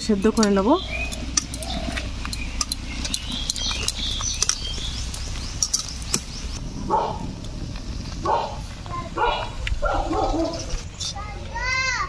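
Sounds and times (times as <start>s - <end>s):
birds chirping: 0.0s - 12.0s
boiling water crackles and pops: 0.3s - 9.8s
dog barking: 6.9s - 7.3s, 8.2s - 8.6s, 9.2s - 10.7s.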